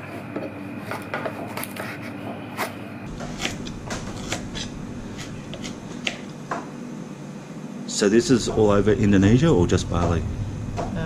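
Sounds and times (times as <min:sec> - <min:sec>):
steady low hum: 0:00.0 - 0:11.0
knife chopping on wooden board: 0:00.4 - 0:06.7.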